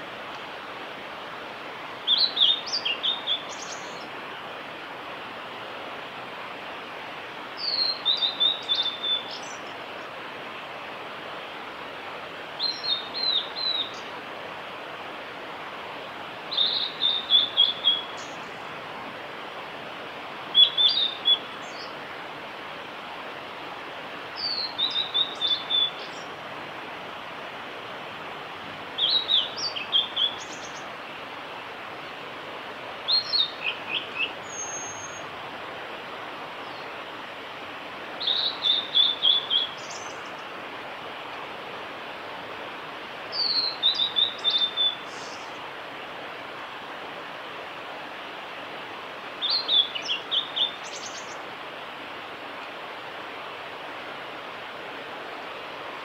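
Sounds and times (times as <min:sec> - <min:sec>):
background hiss: 0:00.0 - 0:56.0
bird singing: 0:02.1 - 0:04.1, 0:07.6 - 0:09.7, 0:12.6 - 0:14.1, 0:16.5 - 0:18.5, 0:20.5 - 0:21.9, 0:24.4 - 0:26.3, 0:29.0 - 0:30.9, 0:33.1 - 0:35.2, 0:38.2 - 0:40.4, 0:43.3 - 0:45.6, 0:49.4 - 0:51.4.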